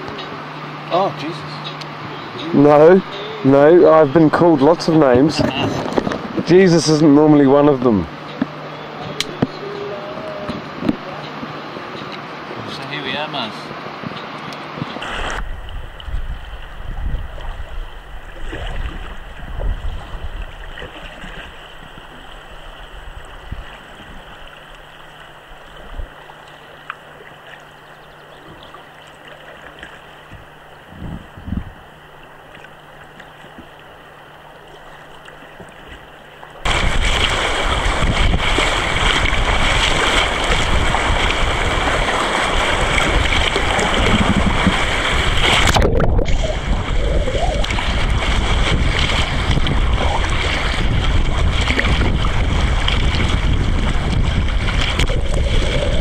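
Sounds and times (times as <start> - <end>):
rapid water rushing and splashing: 0.0 - 56.0
river water lapping: 0.0 - 56.0.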